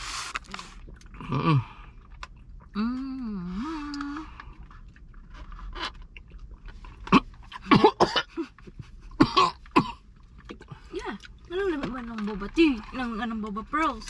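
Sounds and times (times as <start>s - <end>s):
person coughing: 7.1s - 8.5s, 9.1s - 10.0s.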